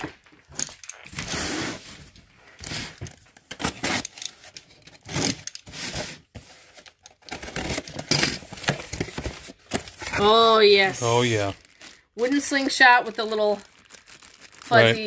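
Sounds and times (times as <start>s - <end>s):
packing tape ripping: 2.6s - 6.2s, 7.2s - 10.4s, 13.3s - 15.0s.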